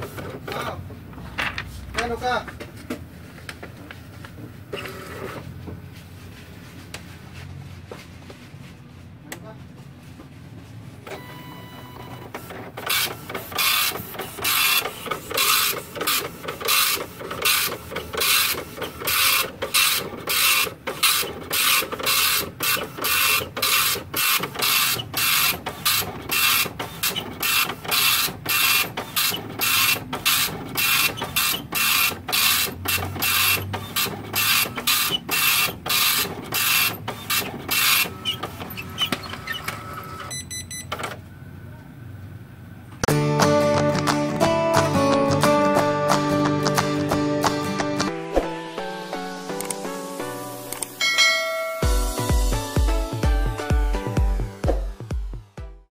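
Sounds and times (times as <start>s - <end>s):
dot matrix printer printing: 0.0s - 2.4s, 4.6s - 5.5s, 11.1s - 41.2s.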